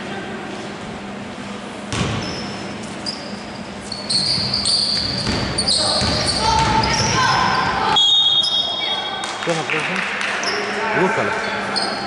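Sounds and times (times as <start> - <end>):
sneaker squeaks: 1.9 - 9.2, 10.4 - 10.7, 11.4 - 12.0
basketball bouncing on hardwood: 4.4 - 7.0.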